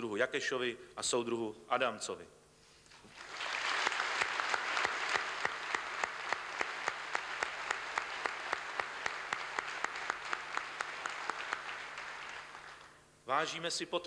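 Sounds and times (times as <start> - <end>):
audience clapping in unison: 3.1 - 13.0
general applause: 3.1 - 13.0.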